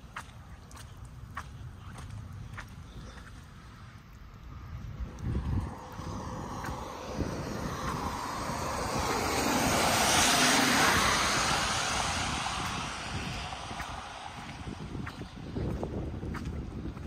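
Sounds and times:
wind rumble on microphone: 0:00.0 - 0:17.0
vehicle passing by: 0:04.5 - 0:17.0.

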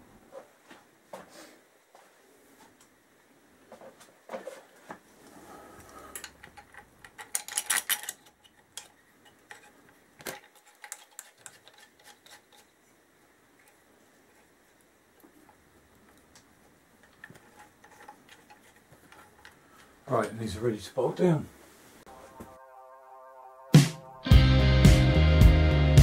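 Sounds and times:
small metal parts clinking: 0:06.1 - 0:12.7.

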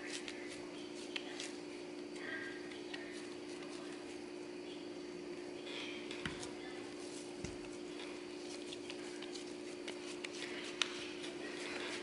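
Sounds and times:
steady hum: 0:00.0 - 0:12.0
hands patting dough: 0:07.2 - 0:12.0.

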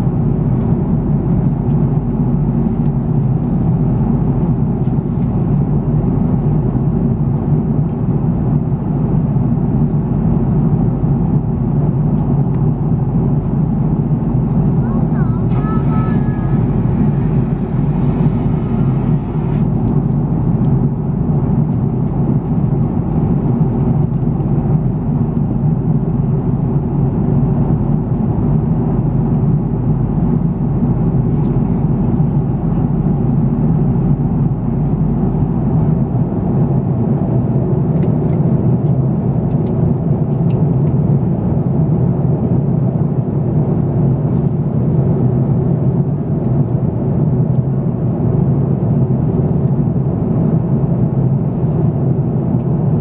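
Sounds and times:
low drone of jet engines: 0:00.0 - 0:53.0
air rushing past fuselage: 0:15.5 - 0:20.9.

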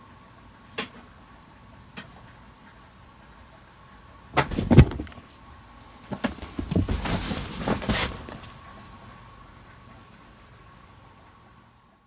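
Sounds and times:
cat paw thumps and knocks: 0:04.4 - 0:05.2
fabric tunnel rustling: 0:04.4 - 0:05.2, 0:06.0 - 0:08.8.

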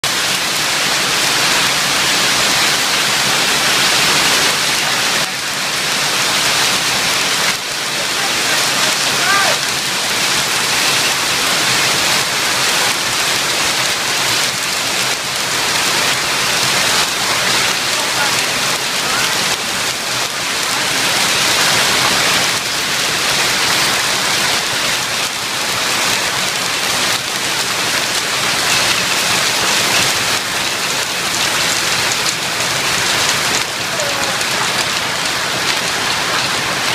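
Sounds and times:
hailstones hitting the ground: 0:00.0 - 0:36.9.

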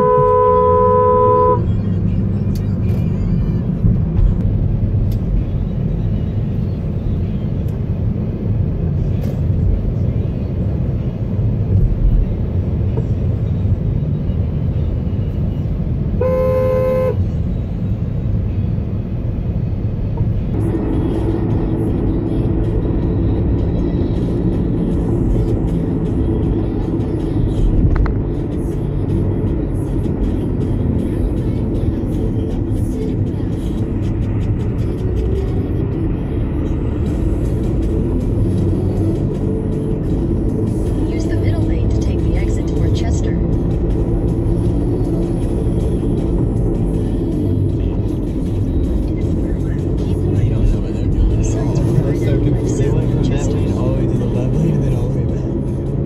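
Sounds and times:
car horn honk: 0:00.0 - 0:01.8, 0:16.2 - 0:17.3
road and engine rumble in car: 0:00.0 - 0:56.0.

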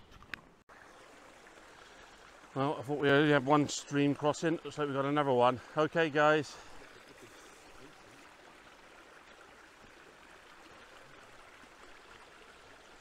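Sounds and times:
stream flowing water: 0:00.1 - 0:13.0.

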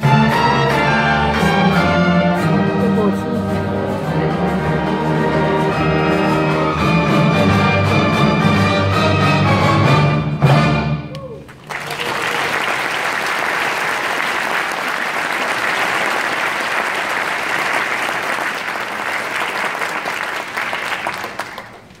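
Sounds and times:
audience applause: 0:11.4 - 0:22.0.

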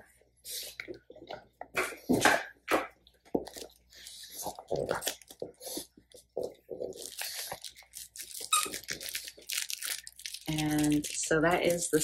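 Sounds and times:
plush toy crinkling: 0:03.4 - 0:12.0.

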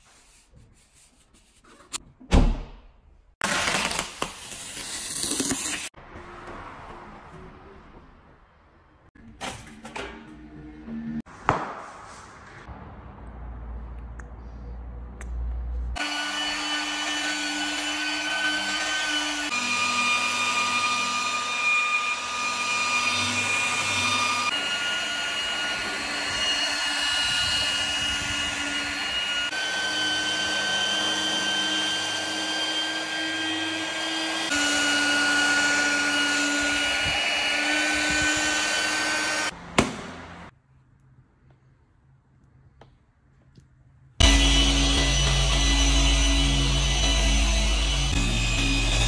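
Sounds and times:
electric polisher motor whine: 0:16.0 - 0:39.5, 0:44.2 - 0:49.0.

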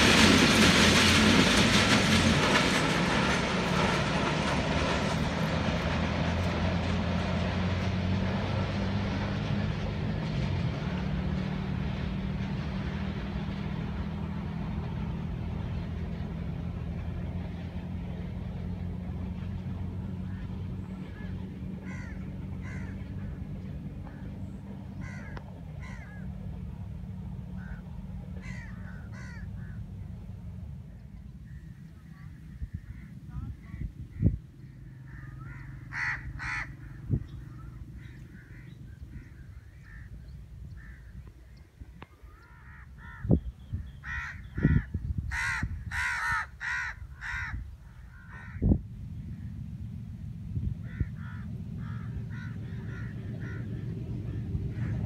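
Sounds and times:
steady low rumble: 0:00.0 - 0:55.0
bird harsh calls: 0:20.3 - 0:23.2, 0:24.1 - 0:26.3, 0:27.5 - 0:29.9, 0:31.4 - 0:49.6, 0:50.8 - 0:55.0
crows cawing: 0:21.1 - 0:23.3, 0:25.0 - 0:26.4, 0:27.5 - 0:29.9, 0:31.5 - 0:40.2, 0:40.8 - 0:41.2, 0:42.3 - 0:43.4, 0:44.0 - 0:48.8, 0:50.8 - 0:55.0.

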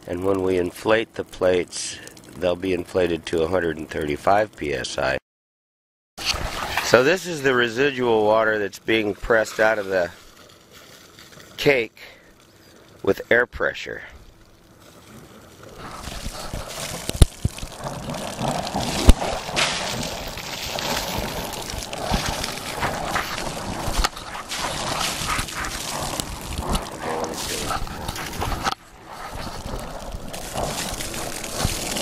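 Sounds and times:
water and air spurting from outlet: 0:00.0 - 0:05.2, 0:06.2 - 0:32.0.

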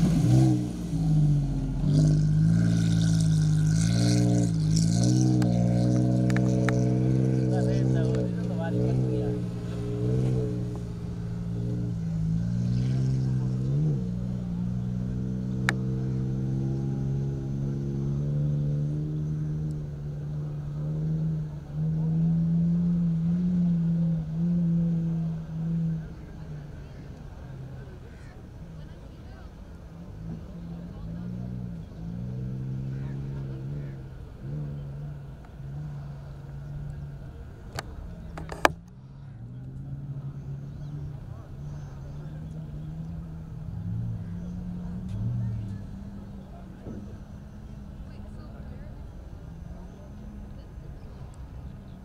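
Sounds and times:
car engine running: 0:00.0 - 0:52.0.

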